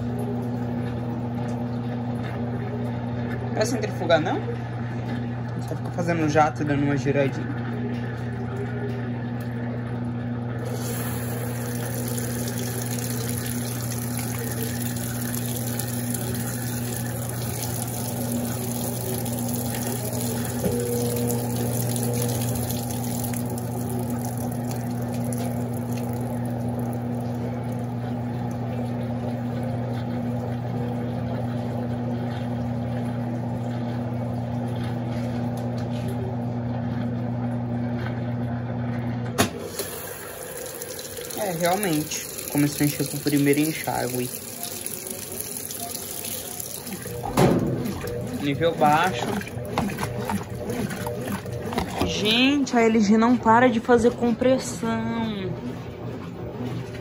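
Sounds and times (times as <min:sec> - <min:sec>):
washing machine motor hum: 0:00.0 - 0:57.0
water running: 0:00.0 - 0:57.0
washing machine clunk: 0:39.2 - 0:40.1, 0:46.2 - 0:52.5.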